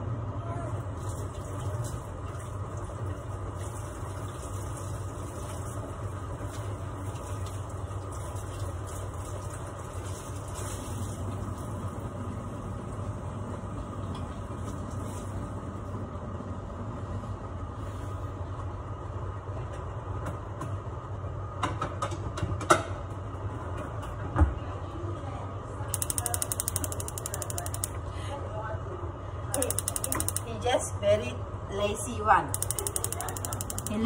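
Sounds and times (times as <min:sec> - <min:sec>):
range hood fan humming: 0:00.0 - 0:34.0
sharp clicks: 0:26.0 - 0:28.0, 0:29.6 - 0:30.5, 0:32.5 - 0:34.0.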